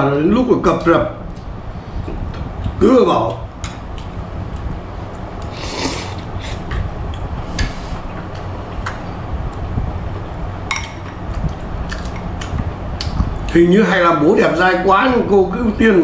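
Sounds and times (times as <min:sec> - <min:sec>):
steady low hum: 0:00.0 - 0:16.0
slurping noodles: 0:05.5 - 0:06.6.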